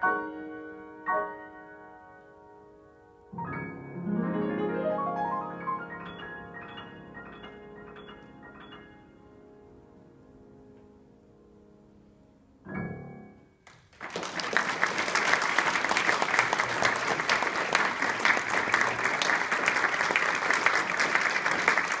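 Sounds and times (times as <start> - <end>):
piano chord ringing: 0.0 - 13.6
audience applause: 13.7 - 22.0.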